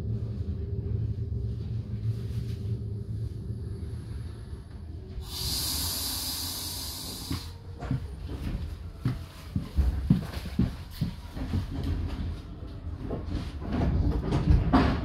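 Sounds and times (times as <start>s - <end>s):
train interior rumble: 0.0s - 15.0s
loud hiss: 5.2s - 7.6s.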